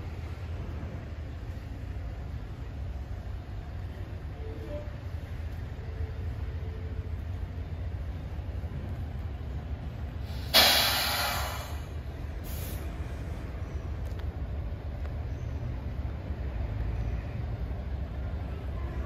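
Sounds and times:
steady low rumble: 0.0 - 19.0
air hissing: 10.2 - 13.3.

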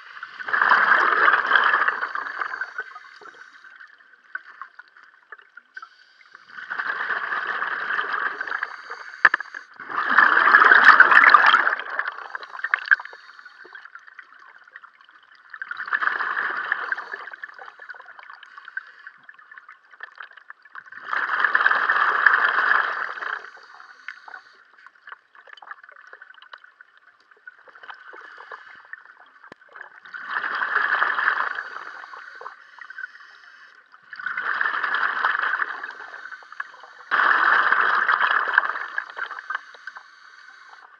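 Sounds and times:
regulator exhaust bubbles underwater: 6.6 - 18.5.

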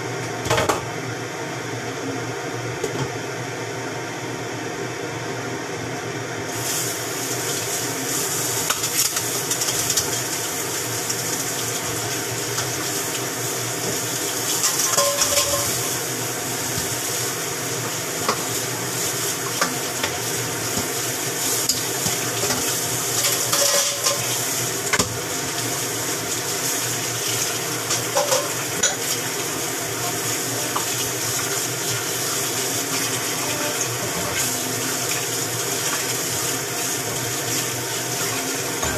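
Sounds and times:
fan humming: 0.0 - 38.9
pots and dishes clinking: 14.6 - 15.9, 21.7 - 24.3, 27.9 - 29.2.

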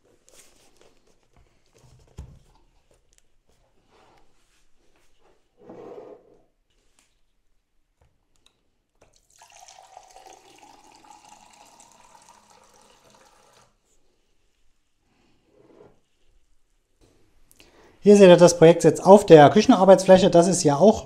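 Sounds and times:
liquid running in a stream: 9.2 - 13.8.

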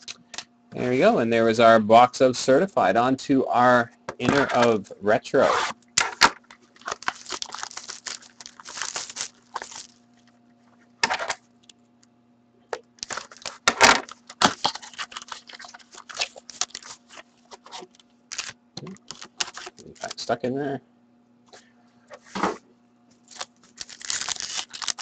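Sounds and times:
card packs rustling and crinkling: 6.1 - 10.0, 13.0 - 20.3, 23.2 - 25.0
cardboard box tearing: 6.8 - 9.9, 23.3 - 25.0.

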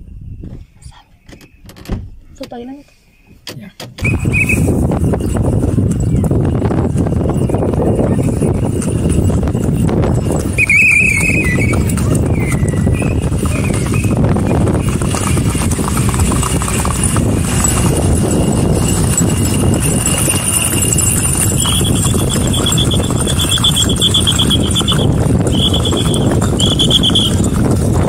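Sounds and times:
horse hooves clip-clopping on road: 4.0 - 28.0
high rapidly pulsing trill: 13.5 - 27.5.

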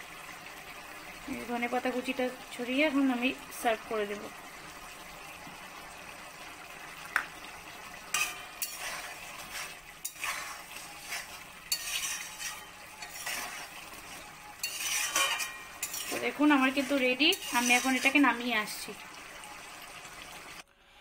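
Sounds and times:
spoon scraping a metal pan: 8.1 - 18.4.

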